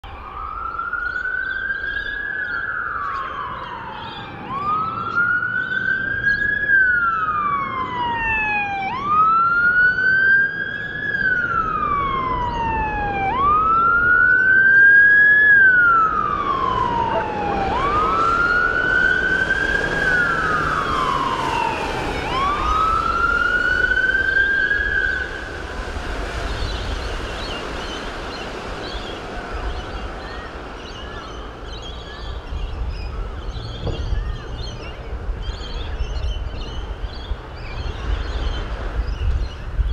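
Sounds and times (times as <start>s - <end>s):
electronic siren wailing: 0.0s - 25.8s
boat wake rushing: 1.8s - 39.9s.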